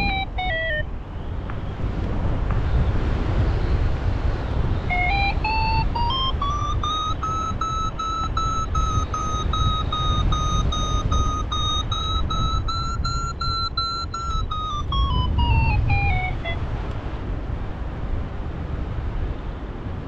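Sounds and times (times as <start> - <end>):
variometer beeping: 0.0 - 0.9, 4.9 - 16.7
wind noise: 0.0 - 20.0.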